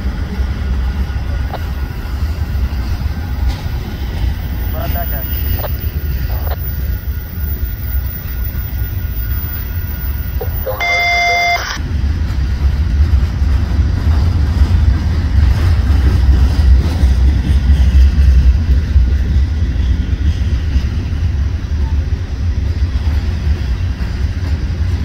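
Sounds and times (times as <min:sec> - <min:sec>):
freight train rumbling past: 0:00.0 - 0:10.9, 0:11.7 - 0:25.0
short electronic beep: 0:05.1 - 0:11.8.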